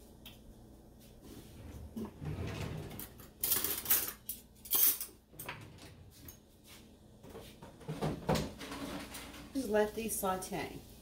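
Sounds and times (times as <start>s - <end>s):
utensils and cookware clattering: 2.5s - 6.4s, 7.8s - 9.7s.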